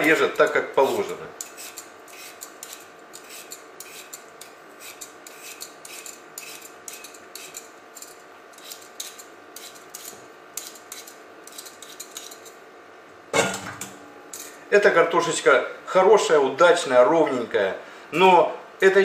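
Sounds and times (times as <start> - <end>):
peeler scraping potato skin: 0.0 - 12.6.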